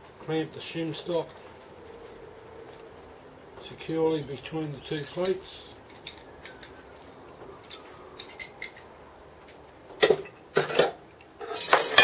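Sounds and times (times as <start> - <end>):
light metal clicks of bolts: 3.8 - 9.6.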